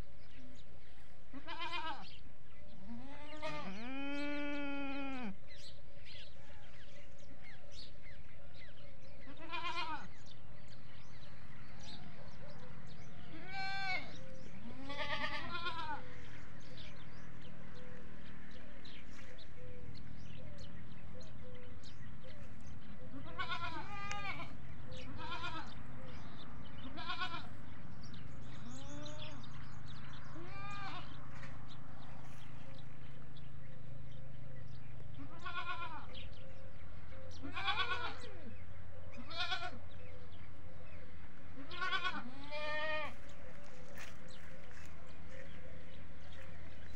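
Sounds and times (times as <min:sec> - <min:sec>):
goats bleating: 0:01.3 - 0:02.2, 0:02.8 - 0:05.4, 0:09.2 - 0:10.3, 0:13.2 - 0:16.8, 0:23.1 - 0:25.8, 0:26.8 - 0:27.7, 0:30.3 - 0:31.2, 0:35.1 - 0:36.2, 0:37.3 - 0:38.3, 0:39.2 - 0:39.8, 0:41.6 - 0:45.4.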